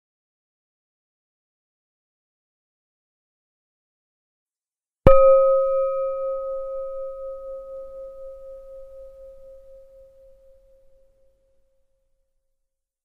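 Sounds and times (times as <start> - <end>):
ringing bell-like chime: 5.1 - 11.2.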